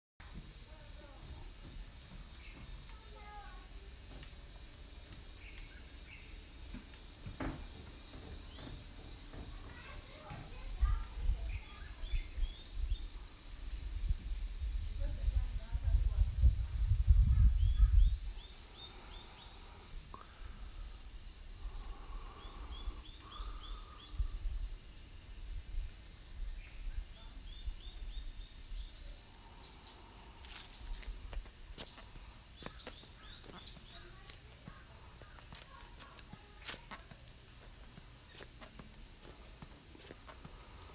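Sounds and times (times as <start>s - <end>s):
forest insects droning: 0.2s - 40.9s
birds chirping: 0.7s - 15.2s, 16.8s - 24.4s, 26.4s - 40.9s
low rumbling on microphone: 10.5s - 32.4s.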